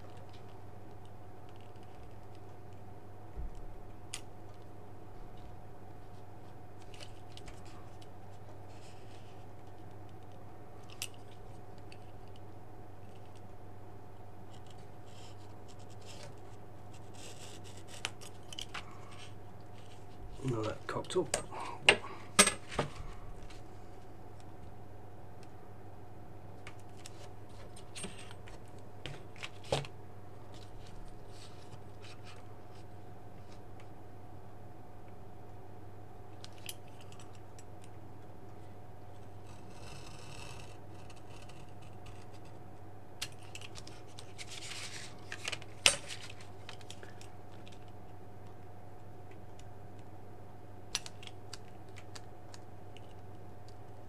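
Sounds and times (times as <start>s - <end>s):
low steady hum: 0.0s - 54.0s.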